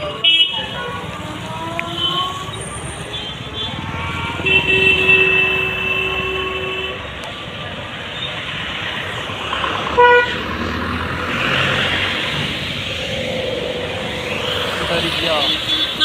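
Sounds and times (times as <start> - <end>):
traffic on wet road: 0.0 - 16.0
car horn toot: 3.1 - 7.0, 10.0 - 10.4.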